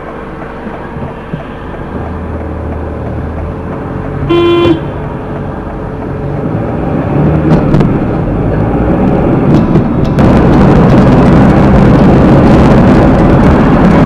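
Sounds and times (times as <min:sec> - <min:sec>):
car running on the road: 0:00.0 - 0:14.0
car horn toot: 0:04.3 - 0:05.0.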